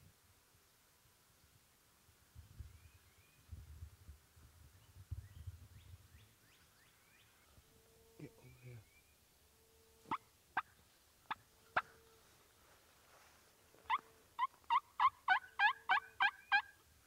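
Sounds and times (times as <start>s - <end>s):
turkey calls: 10.0s - 12.0s, 13.8s - 16.8s.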